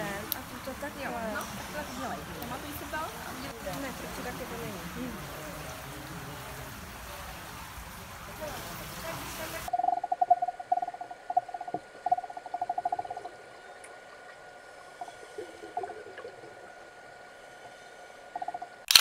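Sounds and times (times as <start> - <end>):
faint steady hum: 0.0 - 18.9
rapidly pulsing underwater tone: 8.4 - 18.9.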